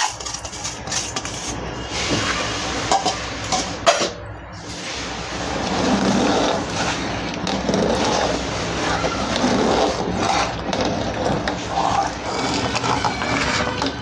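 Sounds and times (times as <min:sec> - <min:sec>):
spoon stirring and scraping pot: 0:00.0 - 0:04.1, 0:04.7 - 0:14.0
thick milk bubbling: 0:04.6 - 0:14.0.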